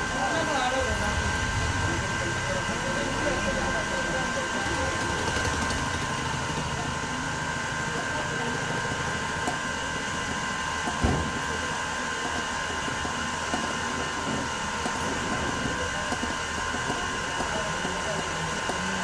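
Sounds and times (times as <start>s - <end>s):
mechanical hum with high tones: 0.0s - 19.0s
thump: 11.0s - 11.4s.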